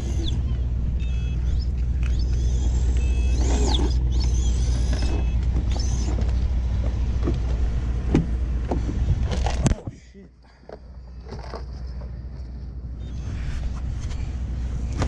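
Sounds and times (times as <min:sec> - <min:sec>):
high gliding whines: 0:00.0 - 0:07.8
pickup truck engine idling: 0:00.0 - 0:09.2.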